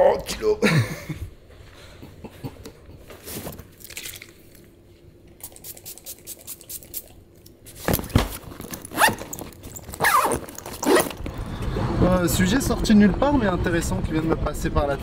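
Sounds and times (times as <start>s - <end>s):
backpack fabric rustling: 7.8s - 11.4s.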